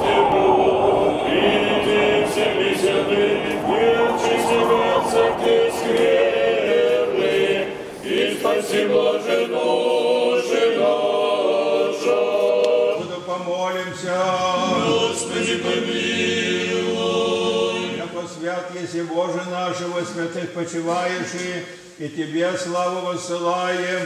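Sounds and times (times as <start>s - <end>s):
men's choir chanting: 0.0s - 13.2s, 14.0s - 18.2s.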